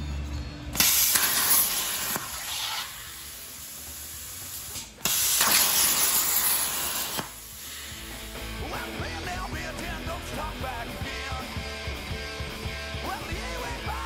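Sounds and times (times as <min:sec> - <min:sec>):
plasma cutter hissing: 0:00.8 - 0:08.0.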